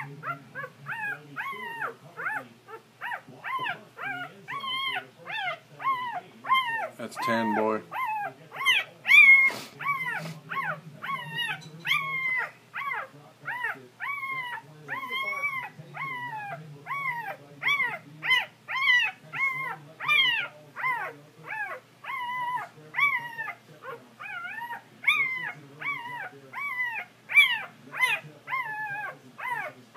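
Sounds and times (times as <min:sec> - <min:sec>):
puppy squealing: 0:00.0 - 0:29.9.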